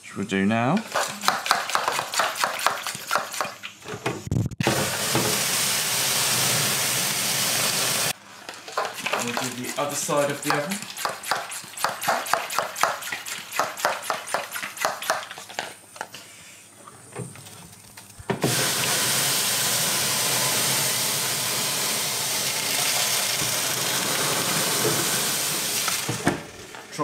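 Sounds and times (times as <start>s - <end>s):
sprayer hissing: 4.6s - 8.2s, 18.4s - 26.4s.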